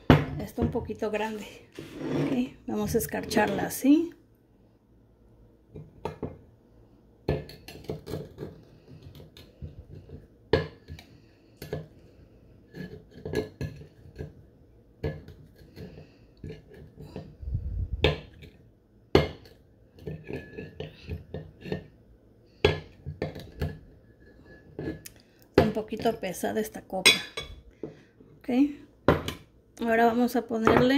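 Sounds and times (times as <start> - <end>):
glass rim scraping on ceramic plate: 1.8 - 2.5.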